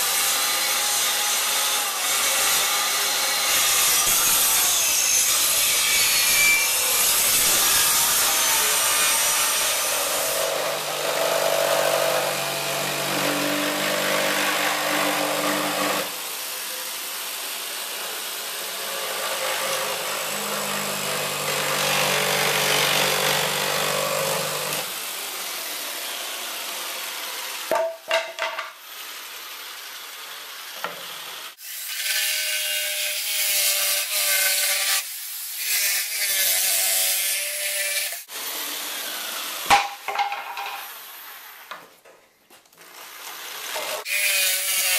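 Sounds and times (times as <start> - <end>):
circular saw cutting wood: 0.0 - 27.7, 28.8 - 40.2, 42.8 - 44.9
jigsaw cutting wood: 7.2 - 27.7, 42.8 - 44.9.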